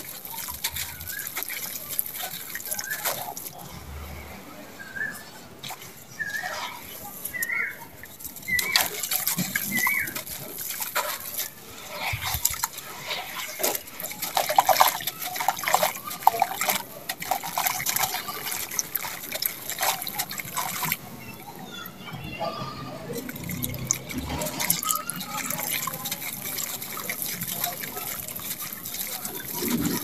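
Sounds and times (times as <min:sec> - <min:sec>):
wet slaps and splashes: 0:00.0 - 0:03.6, 0:05.7 - 0:21.1, 0:23.2 - 0:30.0
hands squelching wet mud: 0:00.0 - 0:22.0, 0:22.8 - 0:30.0
sand trickling into water: 0:00.0 - 0:22.2, 0:22.8 - 0:30.0.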